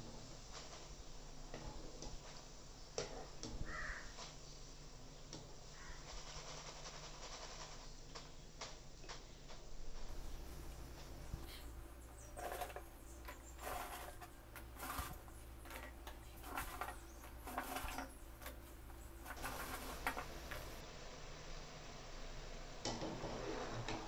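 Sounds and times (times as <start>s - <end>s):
dough balls sizzling in hot oil: 10.1s - 24.0s.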